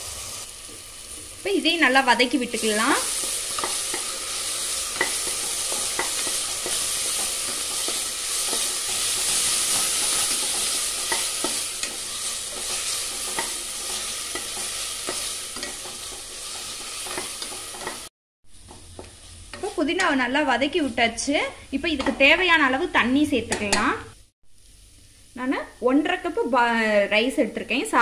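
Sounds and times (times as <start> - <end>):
paste sizzling in hot oil: 0.0 - 21.3
wooden spatula scraping a pot: 3.1 - 18.1.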